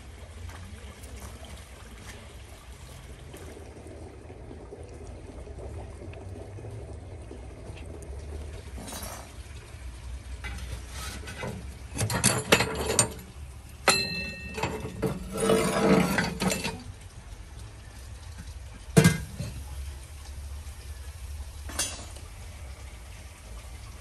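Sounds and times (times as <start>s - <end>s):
metal pokers scraping iron: 10.4s - 16.9s, 21.7s - 22.2s
metal clang ringing: 13.9s - 16.8s, 19.0s - 19.5s.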